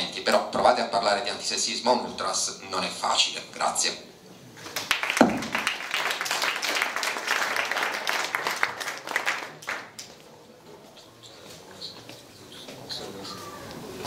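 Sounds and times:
audience applauding: 0:04.7 - 0:10.1.

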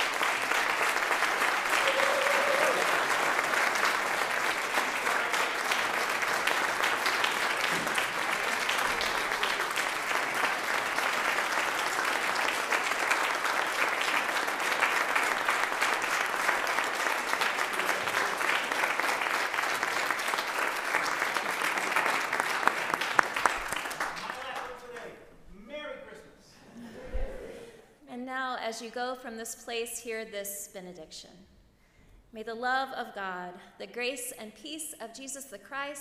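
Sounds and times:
crowd applauding: 0:00.0 - 0:25.2.

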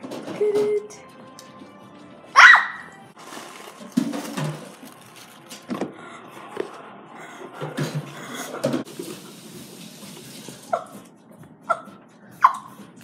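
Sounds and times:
cardboard and paper rustling: 0:03.2 - 0:06.0.

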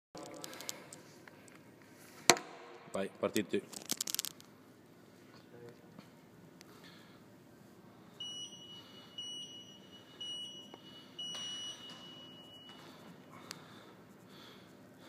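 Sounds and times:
timer beeps: 0:08.2 - 0:13.0.

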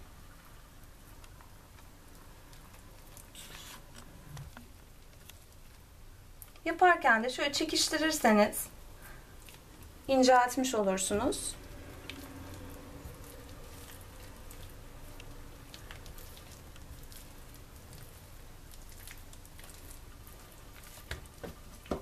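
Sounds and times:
low room hum: 0:00.0 - 0:22.0
hands rolling dough on countertop: 0:07.4 - 0:22.0.

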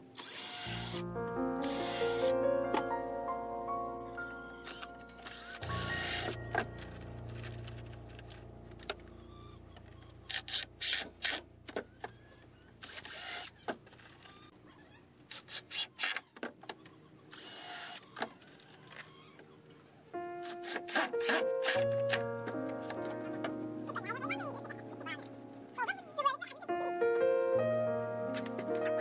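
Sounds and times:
cordless drill into wood: 0:00.0 - 0:01.0, 0:01.6 - 0:02.3, 0:12.8 - 0:13.5, 0:17.3 - 0:18.2.

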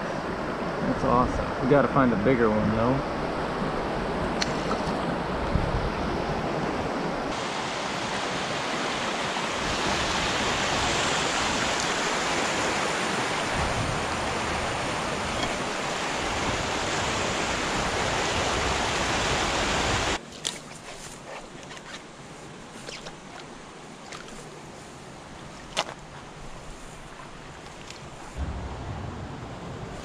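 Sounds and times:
creek water rushing over rocks: 0:06.9 - 0:20.4.

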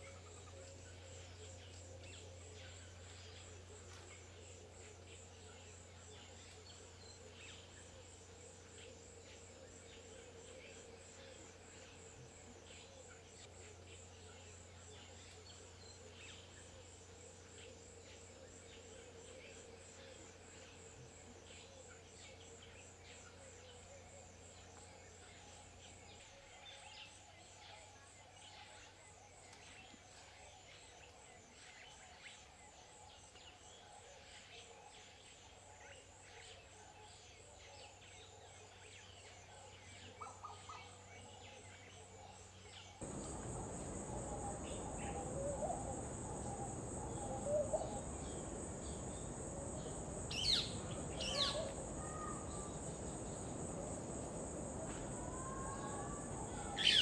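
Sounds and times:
pulsing insect trill: 0:43.0 - 0:57.0
small birds chirping: 0:43.0 - 0:57.0.

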